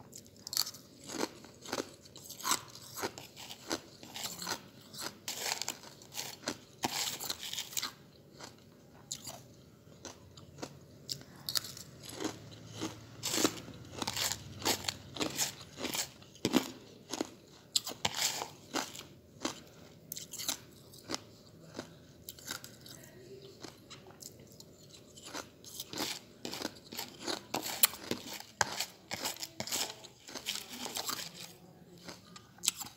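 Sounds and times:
ice chips being chewed: 0.1 - 32.9.

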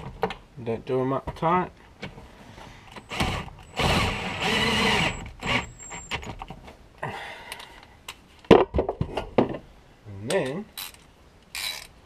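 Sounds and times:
cordless drill spinning nuts: 3.0 - 6.2, 11.6 - 11.9.

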